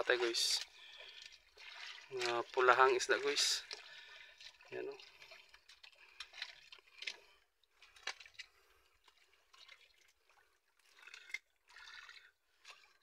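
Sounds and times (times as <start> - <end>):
water dripping and trickling: 0.0 - 13.0
clicks and rustles of fishing net: 7.8 - 9.9.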